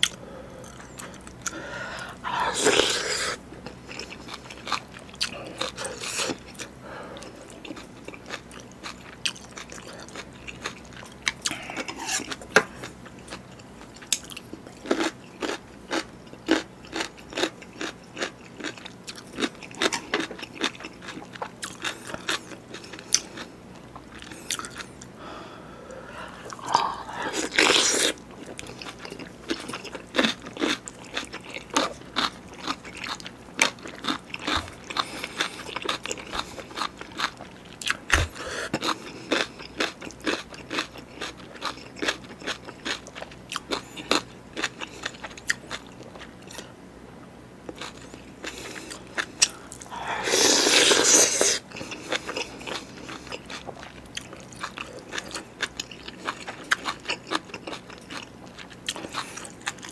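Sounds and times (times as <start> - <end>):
crunchy chewing: 0.0 - 25.2, 25.9 - 46.8, 47.6 - 59.9.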